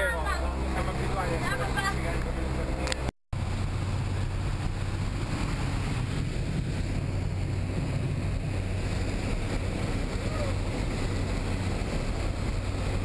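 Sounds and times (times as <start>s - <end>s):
plane engine and propeller droning: 0.0s - 13.0s.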